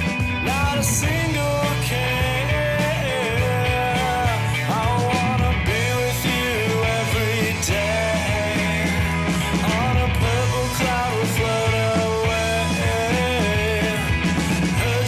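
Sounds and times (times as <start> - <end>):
rock song with singing: 0.0 - 15.0.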